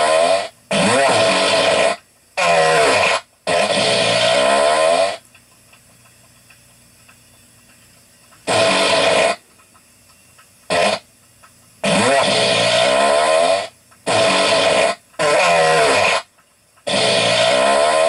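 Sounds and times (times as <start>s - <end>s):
rasping farts: 0.0s - 5.2s, 8.4s - 9.4s, 10.7s - 11.1s, 11.8s - 18.0s.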